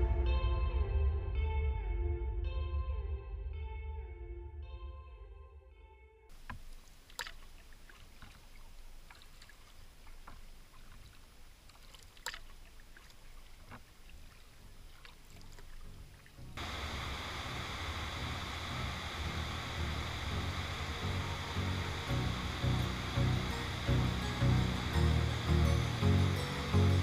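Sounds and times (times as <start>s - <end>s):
water drips and clicks: 6.3s - 27.0s
water rushing over weir: 6.3s - 27.0s.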